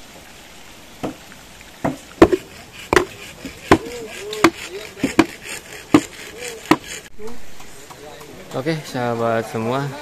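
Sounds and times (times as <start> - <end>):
chopping blows on bamboo: 1.8 - 8.0.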